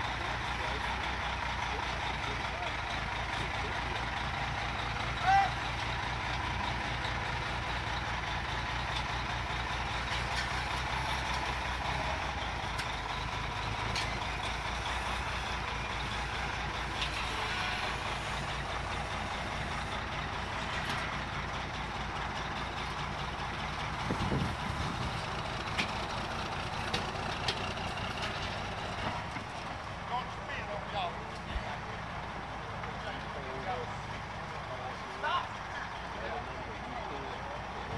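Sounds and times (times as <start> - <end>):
truck diesel engine under load: 0.0 - 37.9
sharp clicks and knocks: 25.6 - 26.1, 26.8 - 29.5.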